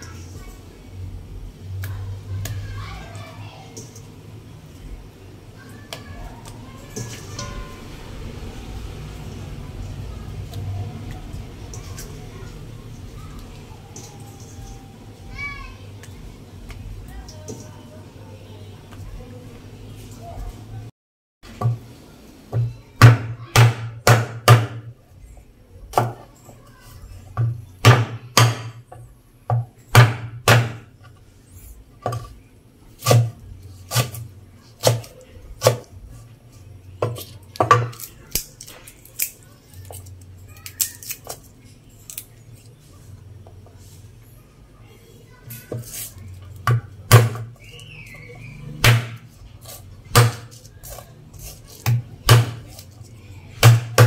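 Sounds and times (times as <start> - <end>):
knife chopping on wooden board: 27.4 - 28.8, 29.5 - 30.9, 33.0 - 33.3, 34.8 - 35.9, 48.8 - 49.2, 50.1 - 50.6, 51.8 - 52.6, 53.6 - 54.0.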